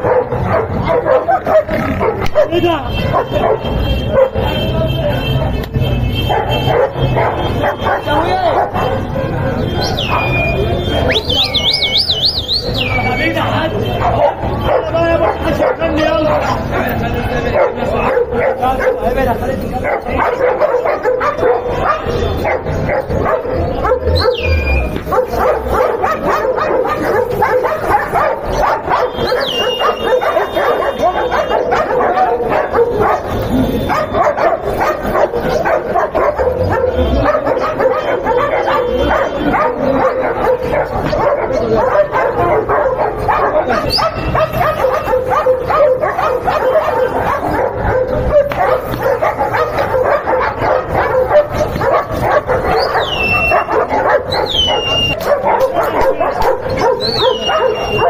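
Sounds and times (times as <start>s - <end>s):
dogs barking: 0.0s - 58.0s
dog snarling: 0.1s - 2.5s.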